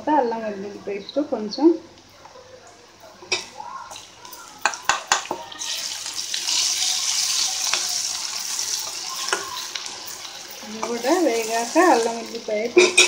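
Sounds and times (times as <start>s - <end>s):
onions sizzling in oil: 3.3s - 13.0s
spoon tapping on steel pan: 4.6s - 5.4s.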